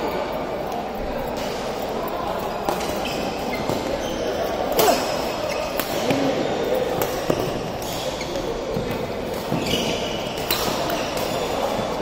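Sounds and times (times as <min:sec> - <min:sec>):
rackets hitting shuttlecock: 0:04.6 - 0:11.9.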